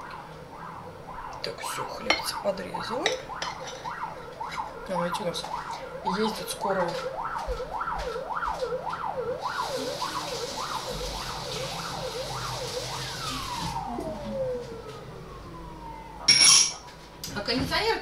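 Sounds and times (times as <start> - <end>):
emergency siren wailing: 0.0 - 18.0
hiss of running water: 9.5 - 13.9.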